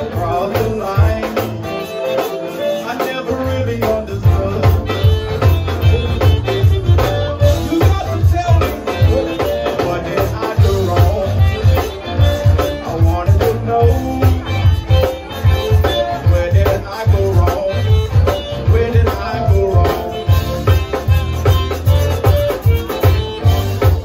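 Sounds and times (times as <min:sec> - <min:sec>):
band playing guitar and drums: 0:00.0 - 0:24.0.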